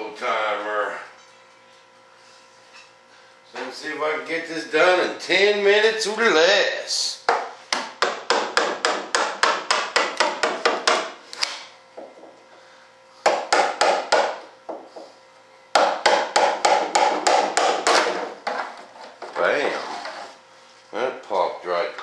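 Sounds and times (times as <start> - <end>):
hand tool tapping fibreglass mold: 7.3 - 12.2, 13.2 - 15.1, 15.8 - 19.4.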